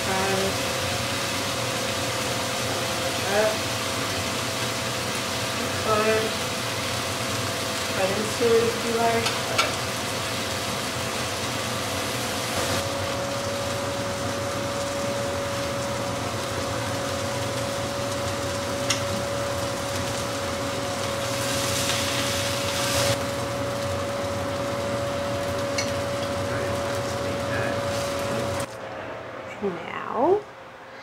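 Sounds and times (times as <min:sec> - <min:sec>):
chicken sizzling in oil: 0:00.0 - 0:28.7
steady low hum: 0:00.0 - 0:31.0.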